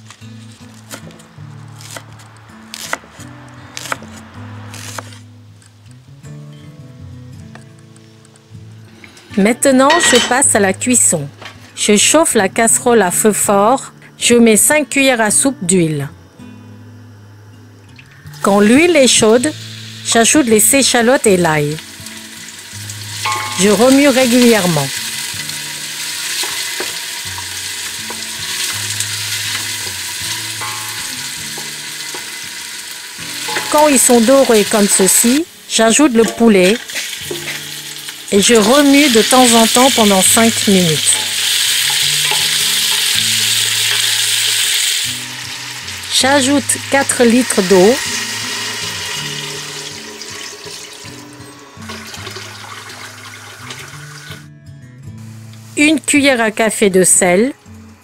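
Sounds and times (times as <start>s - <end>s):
shallots sizzling in oil: 0.0s - 6.4s, 8.9s - 12.4s, 16.2s - 54.5s, 55.2s - 57.3s
background music: 0.0s - 58.0s
water pouring into a pot: 21.8s - 35.0s, 46.7s - 54.4s.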